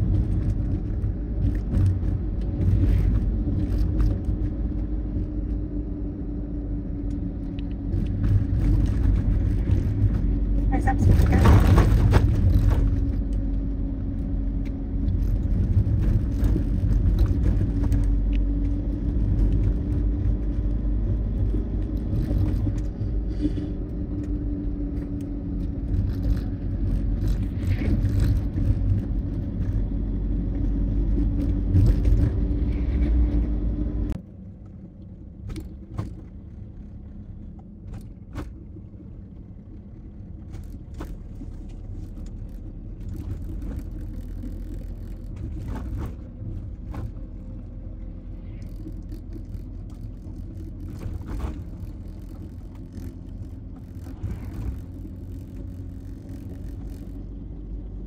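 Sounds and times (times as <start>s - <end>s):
engine hum: 0.0s - 58.0s
road rumble: 0.0s - 58.0s.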